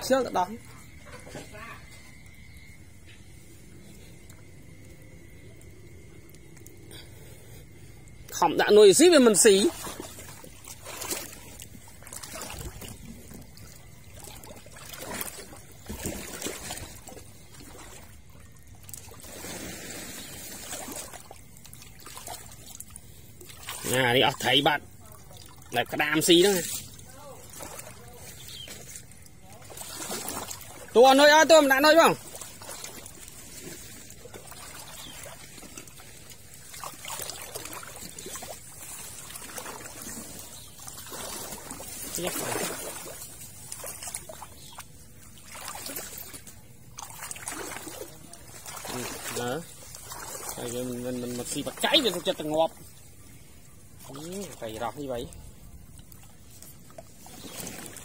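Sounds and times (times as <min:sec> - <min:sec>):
small splashes and drips: 0:00.0 - 0:58.0
water trickling and pouring: 0:01.8 - 0:58.0.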